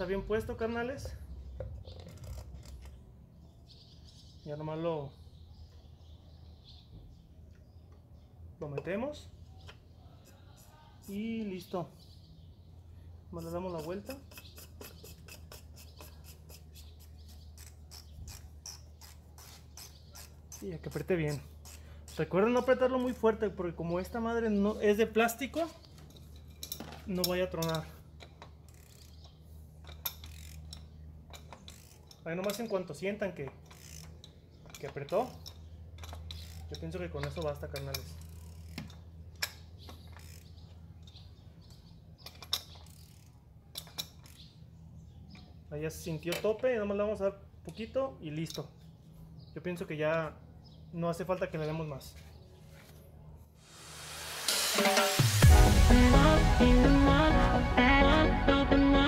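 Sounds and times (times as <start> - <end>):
wrench metallic click: 29.9 - 32.7.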